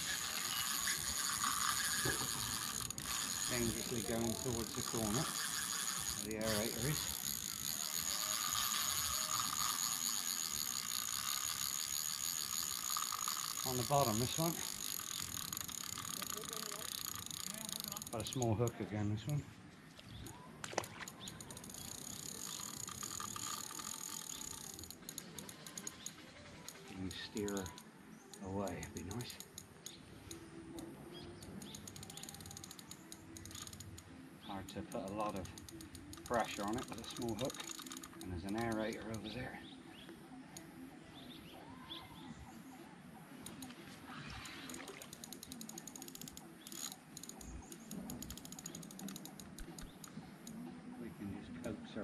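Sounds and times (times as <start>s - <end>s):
fishing reel ticking: 0.0s - 19.3s, 21.0s - 39.6s, 43.4s - 50.6s
faint bird chirps: 19.2s - 22.8s, 38.2s - 51.7s.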